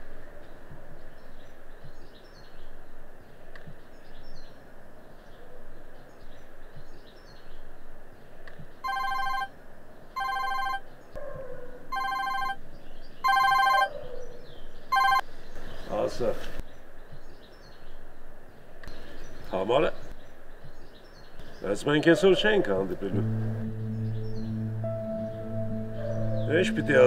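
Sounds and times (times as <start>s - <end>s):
birds chirping: 0.0s - 27.0s
phone ringtone: 8.9s - 9.5s, 10.2s - 10.8s, 11.9s - 12.6s, 13.2s - 13.9s, 15.0s - 15.2s.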